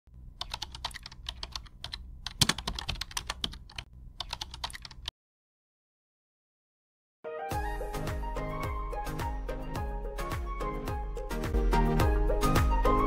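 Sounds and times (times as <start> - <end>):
low steady hum: 0.1 - 5.1
keyboard typing clicks: 0.4 - 5.1.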